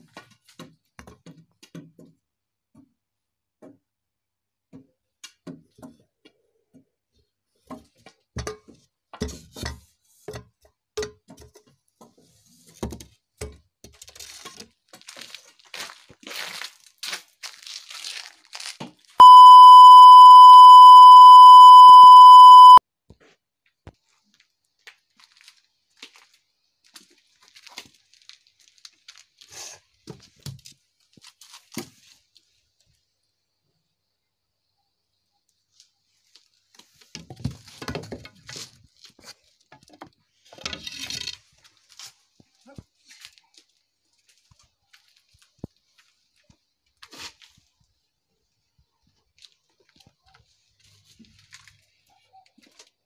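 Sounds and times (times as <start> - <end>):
crunching and crackling: 14.3 - 19.2, 24.8 - 29.5
loud electronic beep: 19.2 - 22.8.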